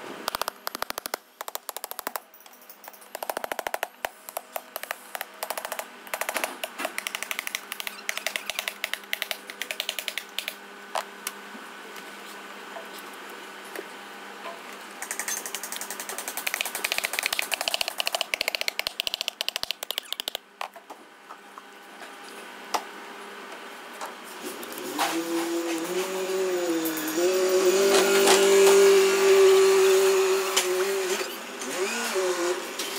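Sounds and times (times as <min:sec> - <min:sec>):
faint machine hum: 0:00.0 - 0:32.9
rapid mechanical clicking and rattling: 0:00.3 - 0:10.6, 0:15.0 - 0:20.5.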